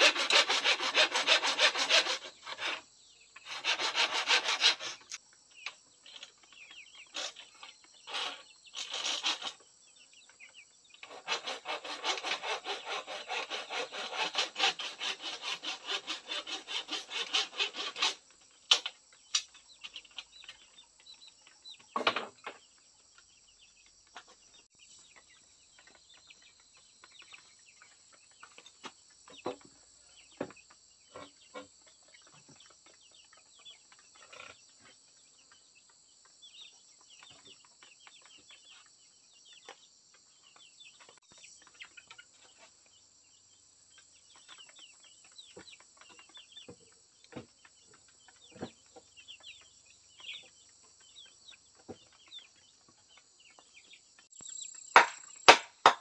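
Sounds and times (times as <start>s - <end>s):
hand saw cutting: 0.0s - 5.2s, 7.1s - 7.5s, 8.1s - 9.6s, 11.0s - 18.9s
knocks: 55.0s - 56.0s.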